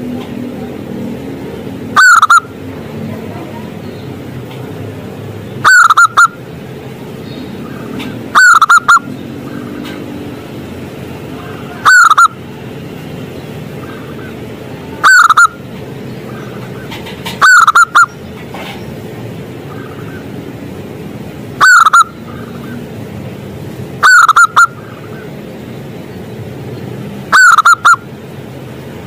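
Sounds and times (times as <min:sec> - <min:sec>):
dove cooing: 0:02.0 - 0:02.4, 0:05.6 - 0:06.3, 0:07.7 - 0:10.0, 0:11.4 - 0:12.4, 0:15.0 - 0:15.6, 0:16.4 - 0:18.1, 0:21.6 - 0:22.9, 0:24.0 - 0:25.2, 0:27.3 - 0:28.0.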